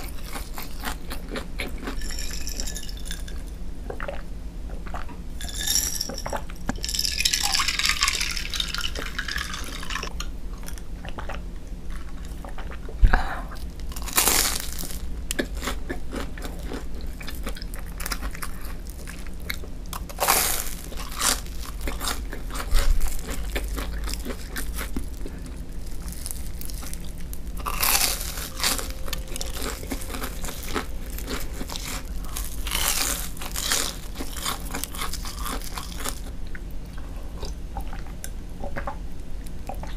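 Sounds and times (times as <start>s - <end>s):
crunchy bites and chewing: 13.6s - 36.7s.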